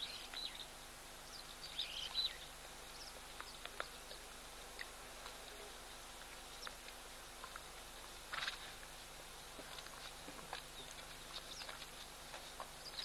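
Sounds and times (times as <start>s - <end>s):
steady outdoor hiss: 0.0s - 13.0s.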